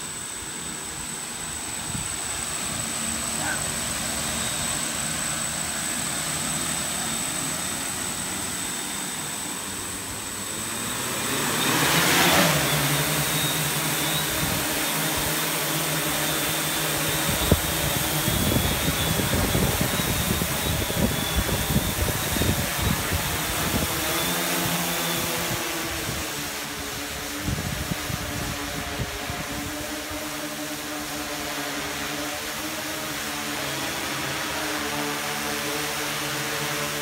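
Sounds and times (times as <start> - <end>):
drone motors and propellers whining: 0.0 - 37.0
wind buffeting microphone: 17.0 - 24.2, 25.2 - 30.3.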